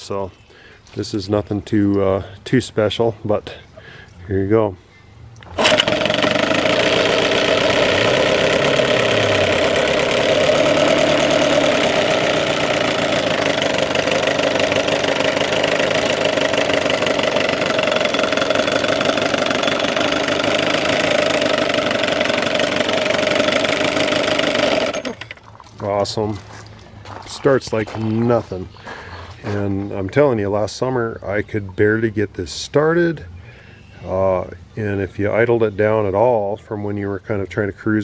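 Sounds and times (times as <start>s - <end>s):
outboard motor running: 5.4s - 25.5s.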